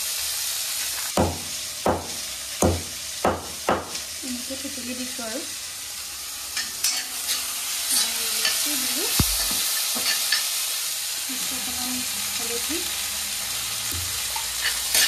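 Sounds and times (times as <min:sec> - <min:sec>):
onion sizzling in hot oil: 0:00.0 - 0:15.0
steel spoon scraping pan: 0:06.6 - 0:08.8, 0:09.4 - 0:10.6, 0:14.3 - 0:15.0.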